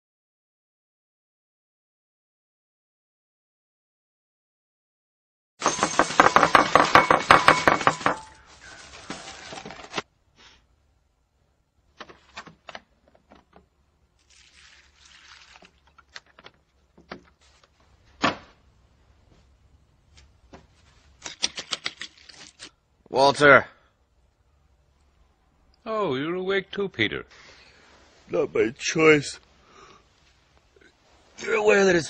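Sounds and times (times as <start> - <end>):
crunching: 5.6 - 10.1, 21.1 - 22.8
cereal rattling into bowl: 5.7 - 10.0, 21.2 - 22.7.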